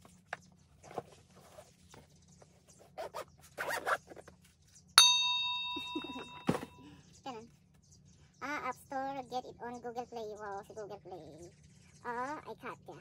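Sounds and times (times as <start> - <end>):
zip-like scratch: 3.0 - 4.0
bright bell-like chime: 5.0 - 6.8.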